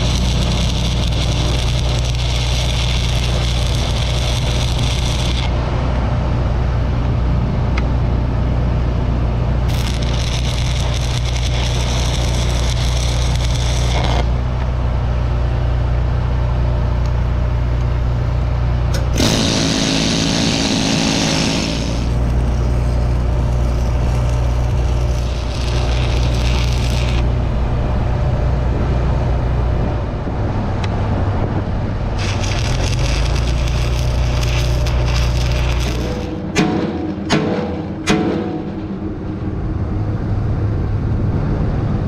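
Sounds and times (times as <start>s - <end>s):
welding arc crackling: 0.0s - 5.6s, 9.6s - 14.7s, 18.9s - 27.4s, 32.1s - 38.0s
low engine drone: 0.0s - 42.0s
burst of noise: 19.0s - 29.6s, 32.1s - 40.2s.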